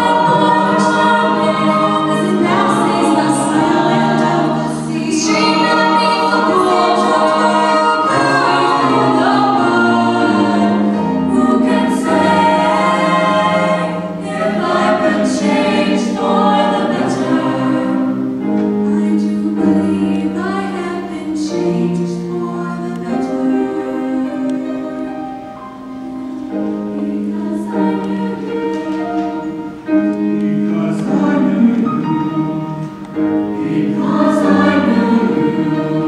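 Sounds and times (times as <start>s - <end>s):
choir singing in parts: 0.0s - 36.0s.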